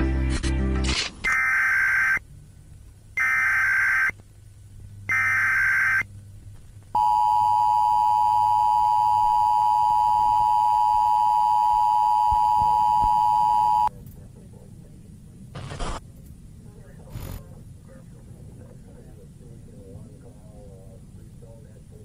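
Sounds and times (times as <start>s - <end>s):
buzzing digital data tones: 1.3s - 2.2s, 3.2s - 4.1s, 5.1s - 6.1s
two-tone alarm tone: 1.3s - 2.2s, 3.2s - 4.1s, 5.1s - 6.0s, 7.0s - 13.9s.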